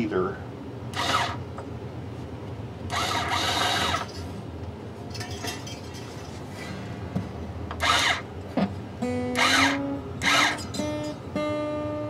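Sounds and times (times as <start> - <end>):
cordless driver winding string: 0.9 - 1.4, 2.9 - 4.1, 7.8 - 8.3, 9.3 - 10.7.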